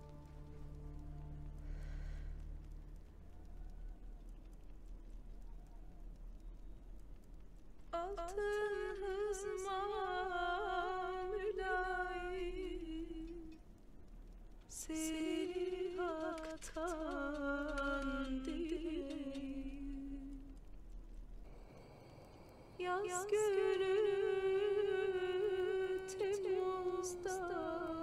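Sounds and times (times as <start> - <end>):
person humming a melody: 22.8 - 28.0.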